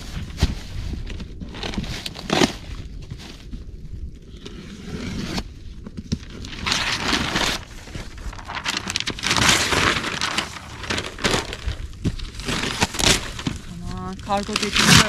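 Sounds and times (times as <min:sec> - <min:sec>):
cardboard rustling and scraping: 0:00.0 - 0:15.0
cardboard ripping: 0:01.4 - 0:02.7, 0:06.2 - 0:15.0.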